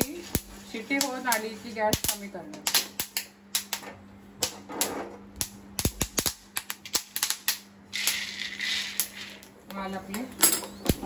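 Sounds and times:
beans popping in a hot pan: 0.0 - 3.8, 5.3 - 9.8.

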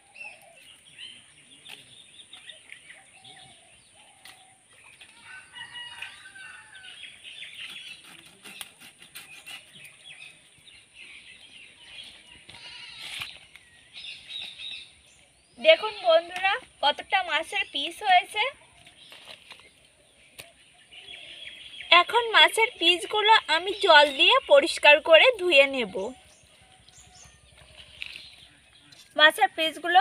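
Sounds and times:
birds calling: 0.0 - 29.9.

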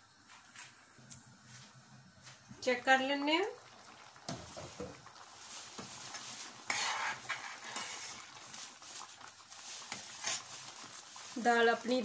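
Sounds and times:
metal spoon stirring in pot: 5.4 - 12.0.

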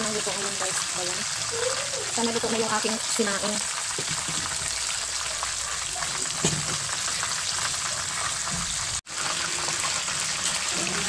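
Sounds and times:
chicken deep-frying in oil: 0.0 - 11.0.

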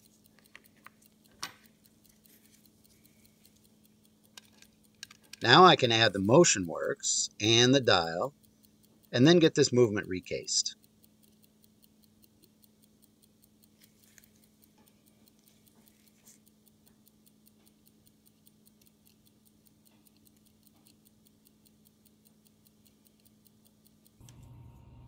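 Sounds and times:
pocket watch ticking: 0.0 - 24.3
tweezers clicking: 0.0 - 24.4
low hum: 24.2 - 25.0.

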